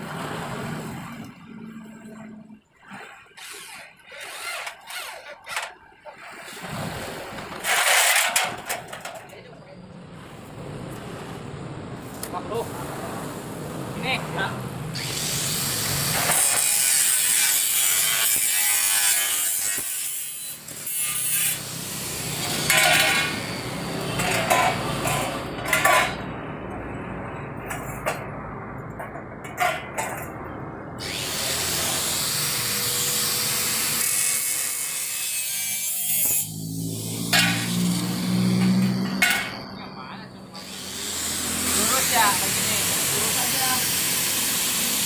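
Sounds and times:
angle grinder cutting steel: 0:03.4 - 0:05.8, 0:07.6 - 0:09.0, 0:15.0 - 0:26.3, 0:31.0 - 0:45.0.

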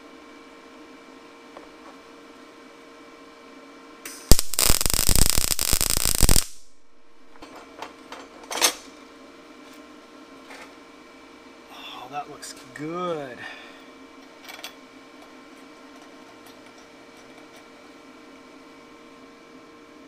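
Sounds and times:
welding arc crackle: 0:04.3 - 0:07.4.

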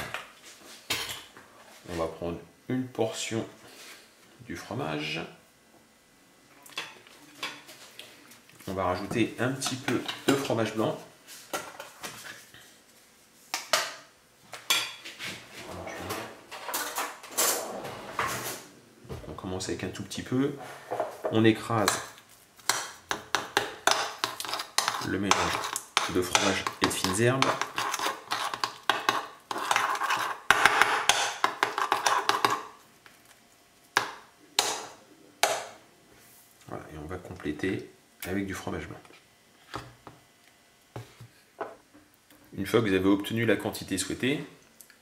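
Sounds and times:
spoon scraping ceramic bowl: 0:23.2 - 0:32.6.

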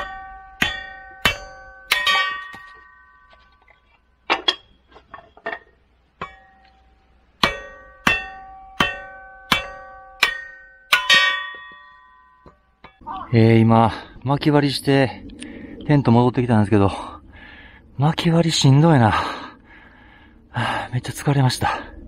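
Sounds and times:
hammer clanging on metal splitter: 0:00.0 - 0:03.5, 0:04.3 - 0:13.0.

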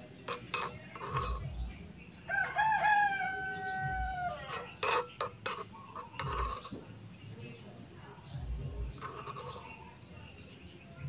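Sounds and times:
metal tongs clinking on wok: 0:00.1 - 0:01.5, 0:04.4 - 0:06.8
rooster crowing: 0:02.3 - 0:04.6.

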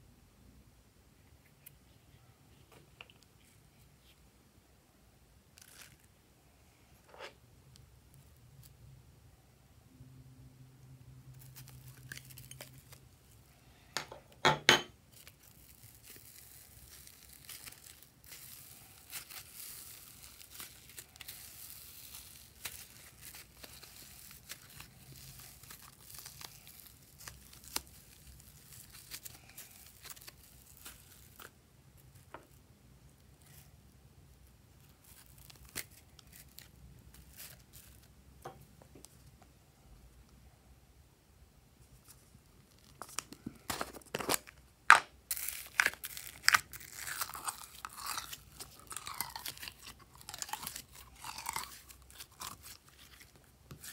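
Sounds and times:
slime crackling and crinkling: 0:05.5 - 0:06.2, 0:11.2 - 0:13.5, 0:15.0 - 0:32.6, 0:33.2 - 0:33.7, 0:34.4 - 0:38.2, 0:42.0 - 0:53.9.

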